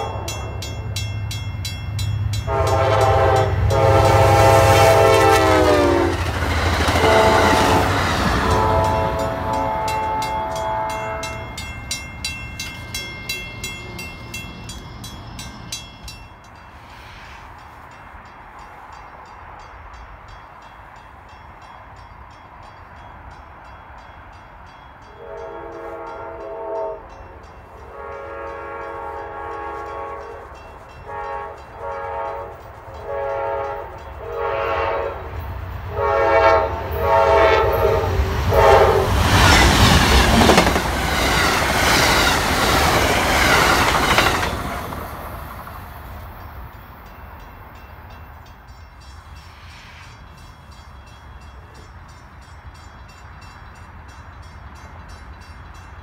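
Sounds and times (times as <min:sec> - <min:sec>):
locomotive horn blasts: 0:00.0 - 0:00.6, 0:02.4 - 0:06.2, 0:07.0 - 0:11.6, 0:25.1 - 0:39.4
train wheels rushing on rail: 0:00.0 - 0:56.0.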